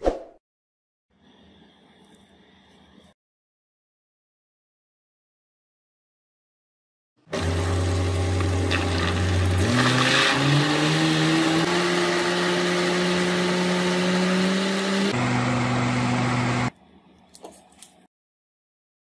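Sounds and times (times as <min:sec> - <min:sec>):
blender motor running: 0:07.3 - 0:16.7.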